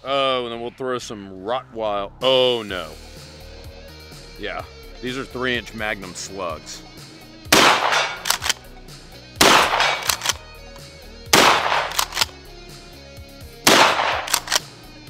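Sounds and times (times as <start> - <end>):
shotgun shots: 7.4 - 8.7, 9.4 - 10.5, 11.3 - 12.4, 13.7 - 14.7
shotgun pump clacks: 7.6 - 8.7, 9.4 - 12.4, 13.7 - 14.7.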